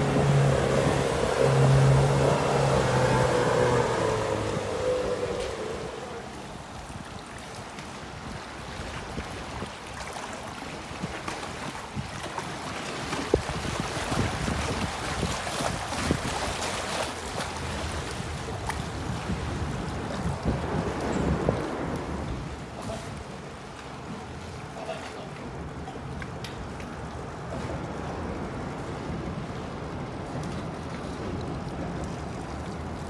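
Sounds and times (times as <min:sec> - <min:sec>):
outboard motor: 0:00.0 - 0:33.0
river water rushing against rocks: 0:00.0 - 0:33.0
wind on microphone: 0:13.1 - 0:16.8, 0:17.8 - 0:23.4.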